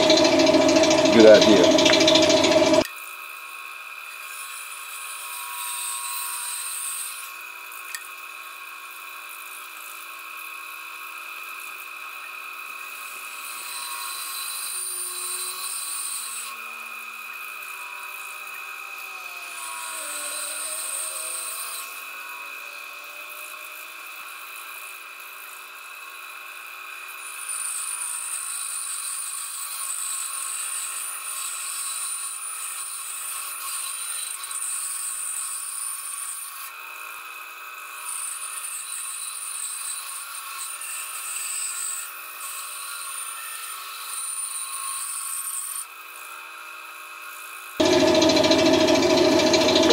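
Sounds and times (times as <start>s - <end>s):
bandsaw blade cutting wood: 0.0s - 2.9s, 13.0s - 36.8s, 47.8s - 49.9s
bandsaw motor whine: 0.0s - 2.9s, 13.2s - 26.6s, 47.8s - 49.9s.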